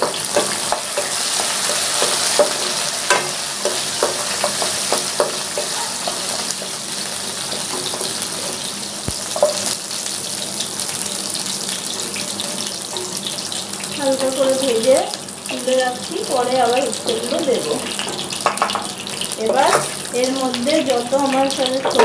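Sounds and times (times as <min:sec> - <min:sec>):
spatula scraping pan: 0:00.0 - 0:08.7
vegetables sizzling in oil: 0:00.0 - 0:22.0.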